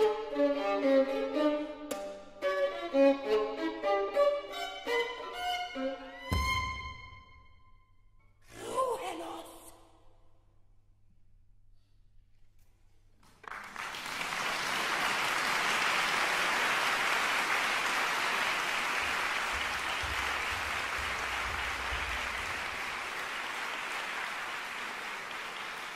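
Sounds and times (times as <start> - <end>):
audience applause: 13.2 - 25.9.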